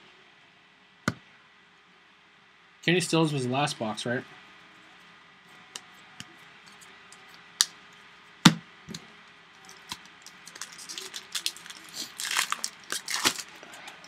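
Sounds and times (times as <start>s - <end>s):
foil wrapper crinkling: 9.6s - 14.0s.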